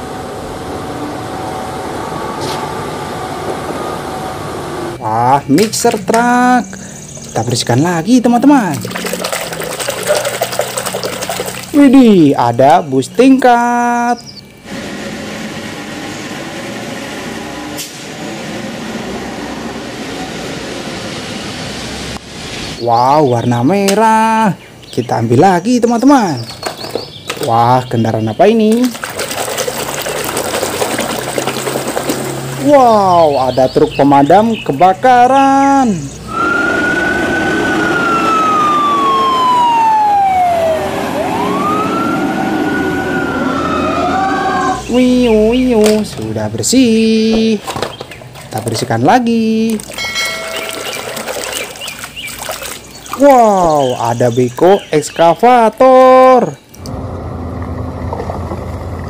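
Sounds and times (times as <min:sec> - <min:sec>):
bus diesel engine drone: 0:00.0 - 0:07.5, 0:12.0 - 0:23.0, 0:35.6 - 0:47.4, 0:56.7 - 0:59.0
tyres on wet road: 0:28.7 - 0:34.0, 0:36.2 - 0:46.6
siren wailing: 0:36.2 - 0:45.6.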